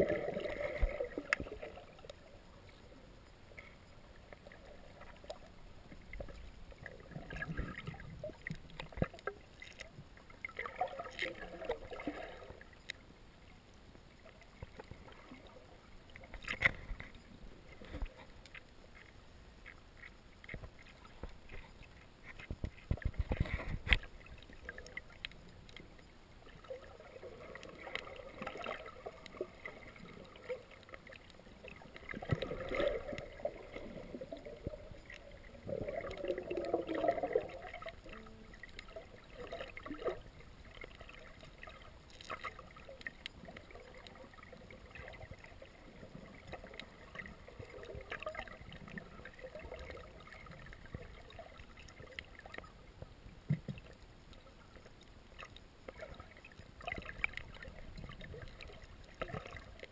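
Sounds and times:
muffled underwater noise: 24.7 - 41.7.

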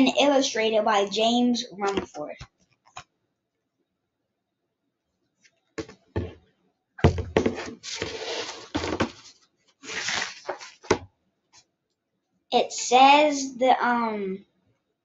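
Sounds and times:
book thumping onto desk: 5.8 - 6.4, 7.0 - 9.2, 10.5 - 11.1
paper rustling as pages turn: 7.4 - 11.0.

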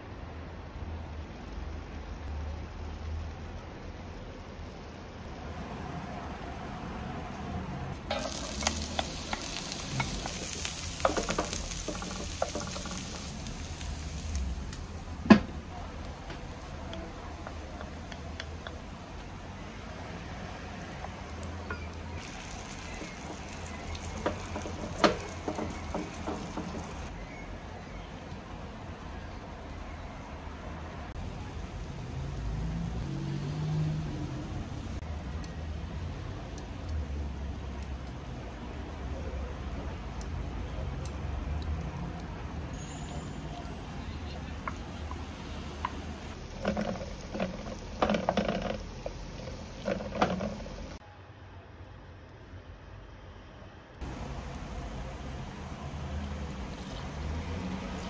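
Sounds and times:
street noise: 0.0 - 58.0
onion sizzling in oil: 1.0 - 5.7, 7.9 - 27.4, 42.7 - 51.0, 54.0 - 58.0
spatula scraping and tapping pan: 8.1 - 13.3, 21.0 - 27.1, 45.8 - 51.0
passing vehicle engine hum: 30.6 - 35.0, 54.0 - 58.0.

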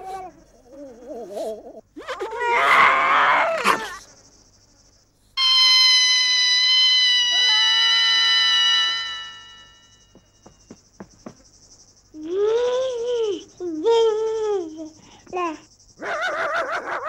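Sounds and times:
high-pitched held tones: 5.4 - 10.6.

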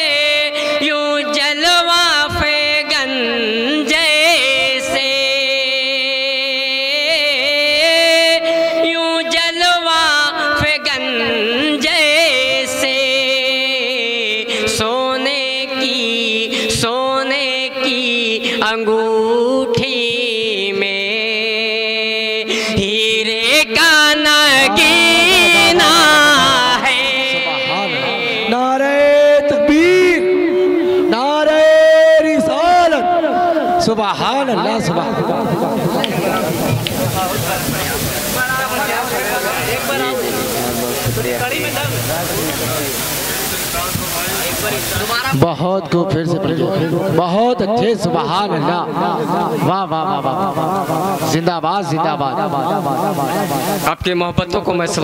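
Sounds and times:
man singing into a microphone: 0.0 - 55.0.

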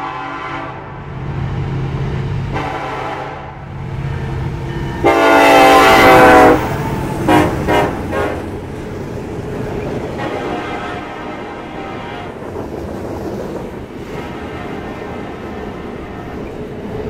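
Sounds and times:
train horn blasts: 0.0 - 1.0, 2.5 - 3.7, 4.8 - 8.5, 10.2 - 12.4, 14.1 - 15.4.

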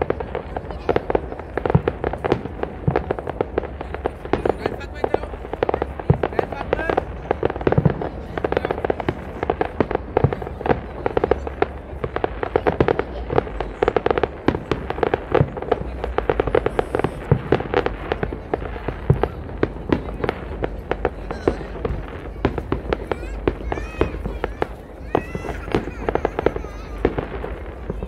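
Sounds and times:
fireworks popping and crackling: 0.0 - 28.0.

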